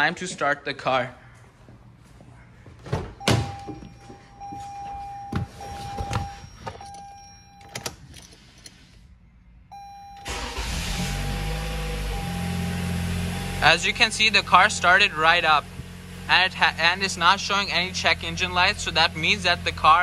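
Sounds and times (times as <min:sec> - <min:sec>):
electronic warning tone: 0:03.2 - 0:07.8, 0:09.7 - 0:12.9
car engine cranking and running: 0:10.1 - 0:20.0.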